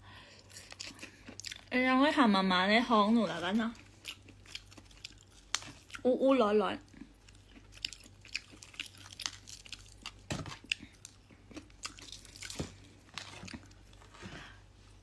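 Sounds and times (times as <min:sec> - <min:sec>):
person chewing food: 0:00.2 - 0:01.7, 0:03.8 - 0:06.0, 0:06.8 - 0:14.2.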